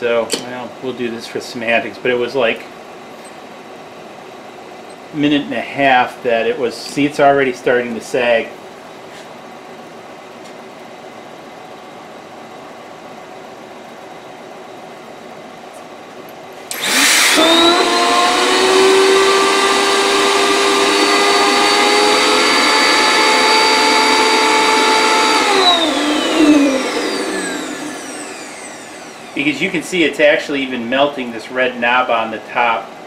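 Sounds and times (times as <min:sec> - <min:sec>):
vacuum motor whine: 0:16.7 - 0:29.6.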